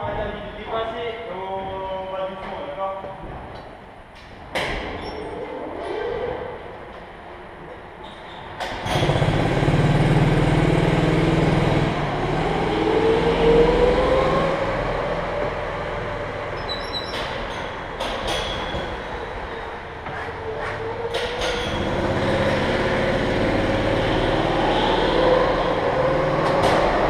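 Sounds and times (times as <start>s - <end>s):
go-kart engines running: 8.8s - 16.6s, 20.3s - 27.0s
engine revving whine: 8.9s - 16.6s, 20.4s - 27.0s.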